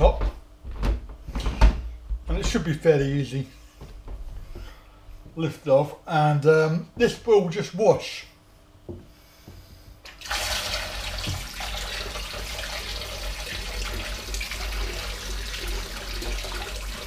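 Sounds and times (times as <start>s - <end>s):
tap water splashing into sink: 10.1s - 17.0s.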